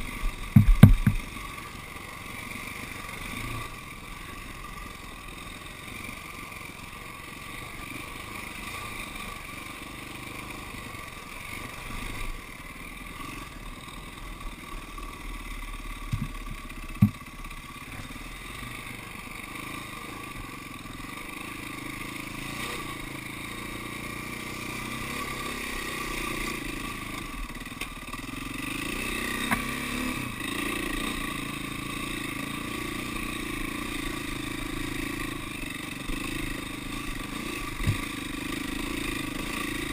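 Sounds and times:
dirt bike engine revving: 0.0 - 39.9
sharp knocks: 0.5 - 1.3, 16.1 - 17.2.

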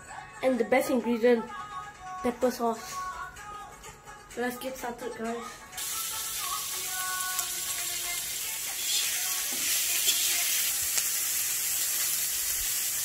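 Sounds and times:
food sizzling in oil: 5.8 - 13.0.

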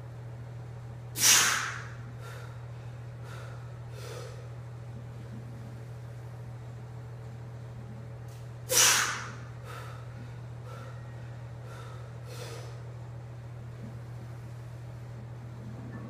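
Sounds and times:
steady low hum: 0.0 - 16.0
man exhaling sharply: 1.2 - 2.4, 8.7 - 9.9
short breaths: 3.2 - 4.5, 8.7 - 12.8.

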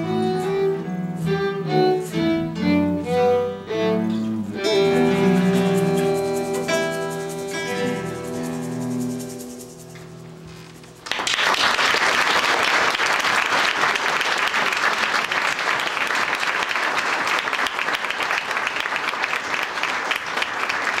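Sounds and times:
music: 0.0 - 11.2
audience applauding: 10.9 - 21.0.

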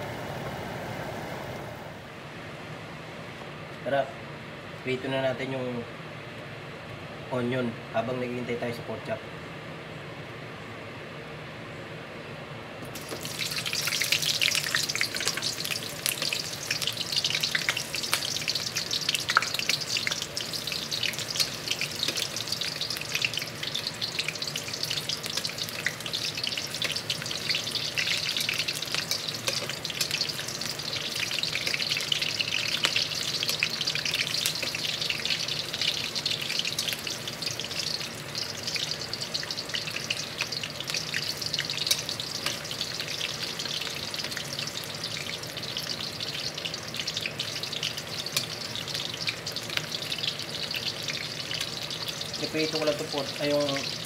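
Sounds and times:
oil popping: 12.8 - 54.0
onions sizzling in oil: 12.8 - 54.0.

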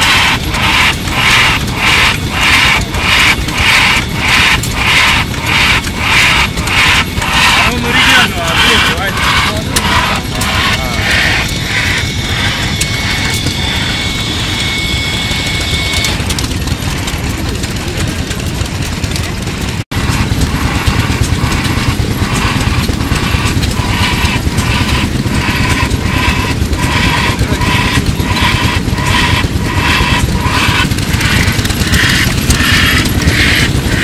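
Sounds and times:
steam hissing: 0.0 - 17.2, 20.0 - 34.0
high steady tone: 0.0 - 17.6
steam engine running: 0.0 - 34.0.

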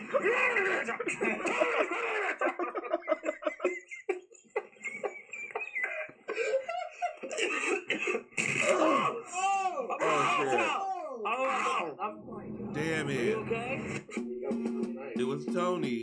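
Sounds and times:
people laughing hard: 0.0 - 7.5, 8.7 - 11.6.

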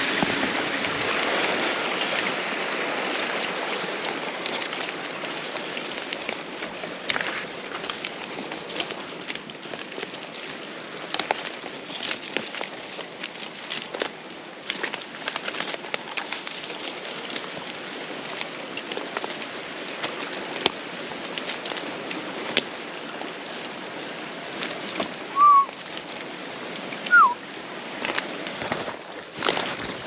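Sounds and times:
twigs cracking: 0.0 - 26.3, 26.9 - 30.0
whistled notes: 25.3 - 25.7, 27.0 - 27.4.

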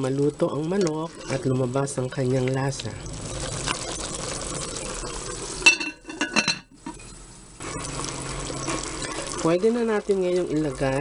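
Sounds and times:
chicken sizzling in liquid: 0.0 - 11.0
glass lid clinking: 5.6 - 7.1.

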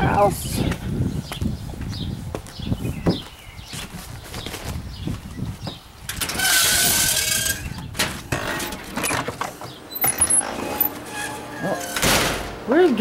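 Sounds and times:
door scraping open: 6.1 - 12.6.

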